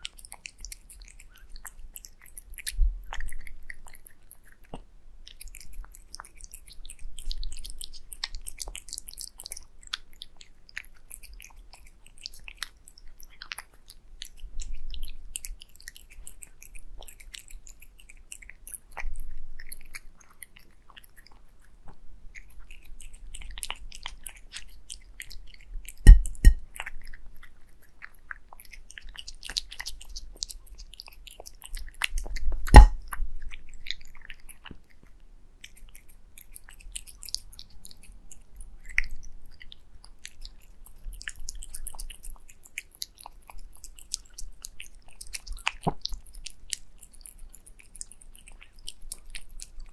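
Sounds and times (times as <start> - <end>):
cat chewing wet food: 0.0 - 49.9
sharp knocks: 26.1 - 26.6, 32.7 - 33.0.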